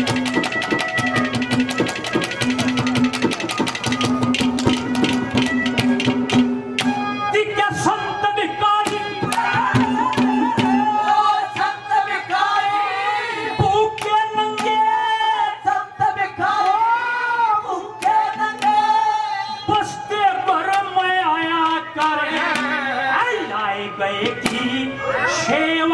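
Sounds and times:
drums: 0.0s - 8.0s, 8.7s - 11.7s
man singing: 10.5s - 25.9s.

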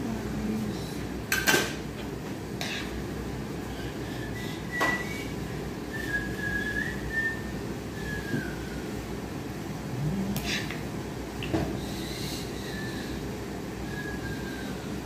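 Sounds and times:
low background hum: 0.0s - 15.0s
soft whistling: 4.0s - 9.0s, 12.0s - 13.2s, 13.8s - 15.0s.

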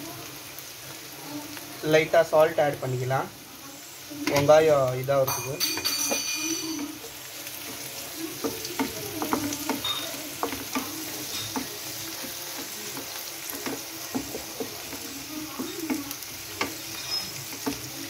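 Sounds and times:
vegetables sizzling in oil: 0.0s - 18.0s
spatula scraping pan: 5.6s - 18.0s.

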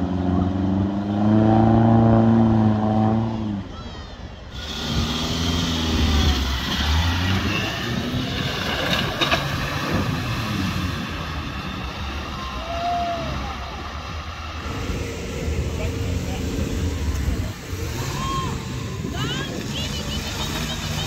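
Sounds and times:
car engine revving: 0.0s - 3.7s, 4.6s - 12.6s, 13.2s - 21.0s
tyres splashing through mud: 4.6s - 21.0s.

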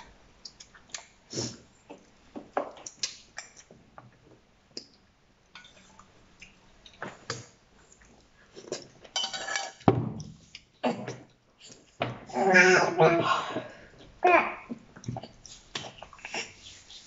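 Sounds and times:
chopsticks clinking on metal pot: 9.1s - 9.8s
eating mouth sounds: 15.0s - 17.0s.

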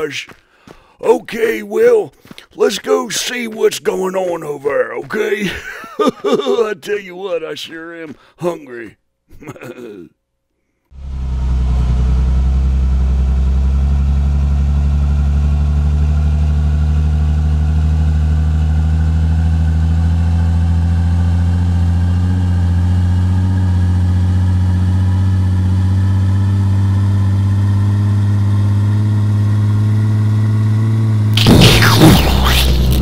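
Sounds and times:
truck engine running: 11.0s - 27.6s.

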